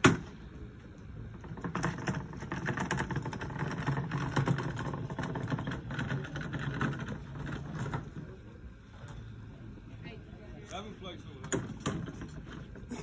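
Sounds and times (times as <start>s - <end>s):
cooler wheels rattling over gravel: 1.1s - 8.6s.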